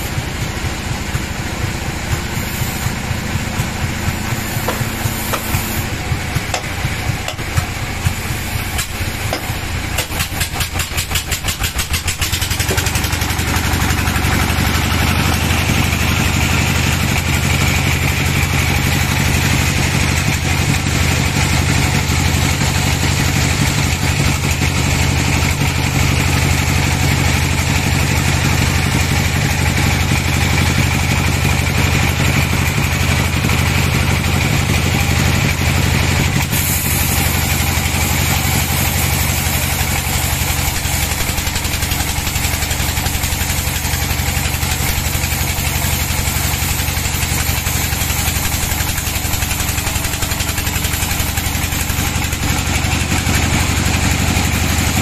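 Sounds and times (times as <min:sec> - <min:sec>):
sawmill machine hum: 0:00.0 - 0:55.0.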